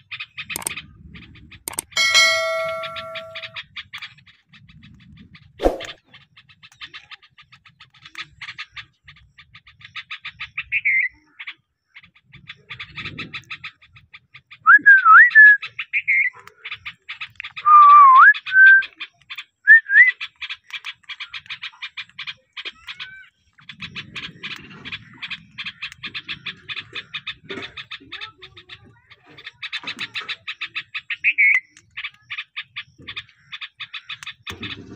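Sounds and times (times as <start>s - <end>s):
parakeet clicky chirps: 0.4s - 0.8s, 1.7s - 3.6s.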